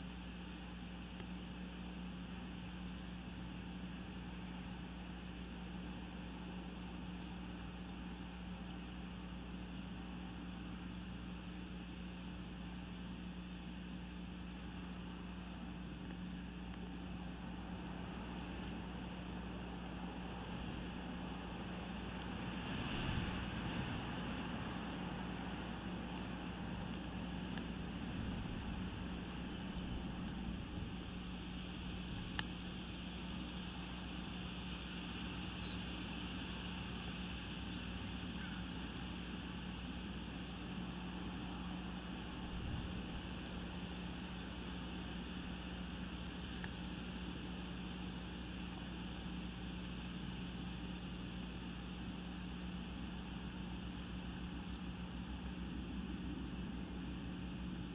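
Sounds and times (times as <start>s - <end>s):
low hum: 0.0s - 57.9s
steady hiss: 14.4s - 55.2s.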